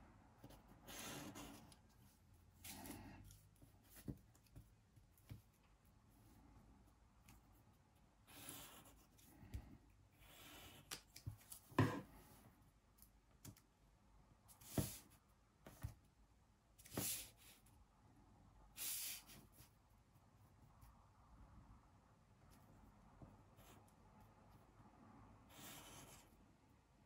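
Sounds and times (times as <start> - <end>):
pencil scratching on paper: 0.4 - 4.7, 8.2 - 9.3, 25.5 - 26.4.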